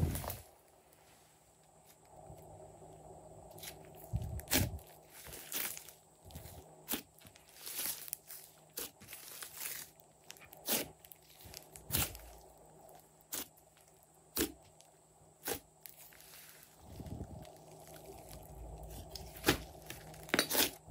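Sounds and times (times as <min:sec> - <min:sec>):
slime crackling and popping: 0:04.4 - 0:12.4.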